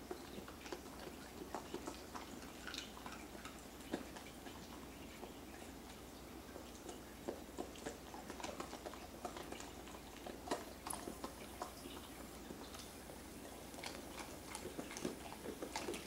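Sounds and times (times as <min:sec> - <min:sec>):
dog crunching biscuit: 0:06.8 - 0:16.0.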